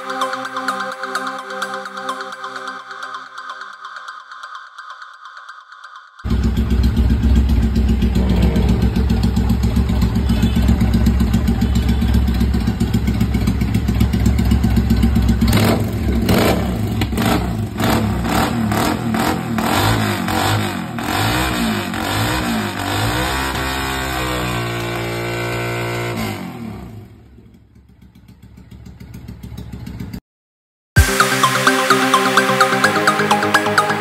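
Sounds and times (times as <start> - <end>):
motorcycle engine revving: 6.3 - 30.2.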